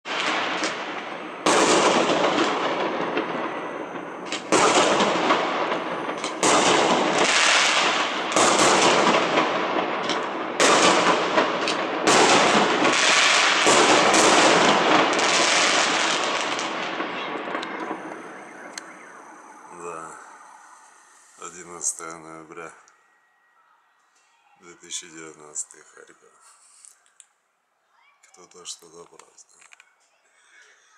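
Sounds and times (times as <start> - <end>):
firework bangs: 0.0 - 22.7.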